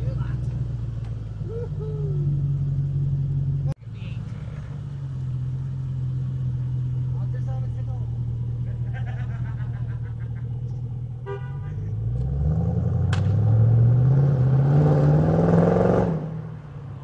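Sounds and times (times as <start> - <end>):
car engine idling and revving: 0.0 - 17.0.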